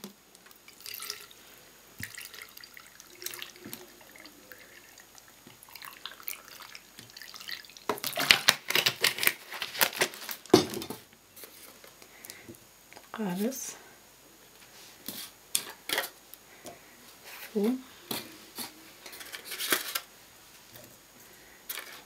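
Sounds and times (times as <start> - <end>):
water dripping into a glass jar: 0.7 - 1.4, 2.0 - 8.0.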